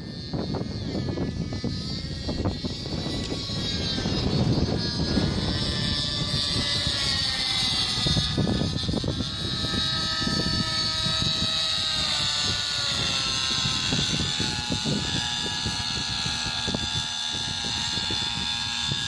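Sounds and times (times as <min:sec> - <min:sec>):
gusty low rumble: 0:00.0 - 0:19.0
model helicopter engine whine: 0:00.0 - 0:19.0.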